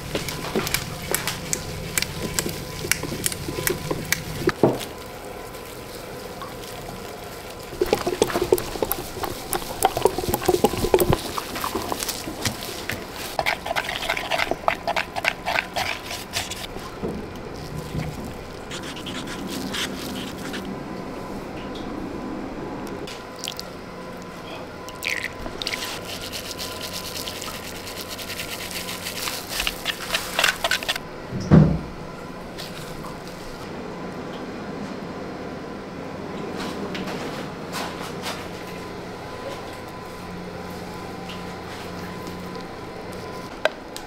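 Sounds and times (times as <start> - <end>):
stick stirring liquid resin: 0.0 - 4.6, 7.6 - 20.7, 25.0 - 31.0.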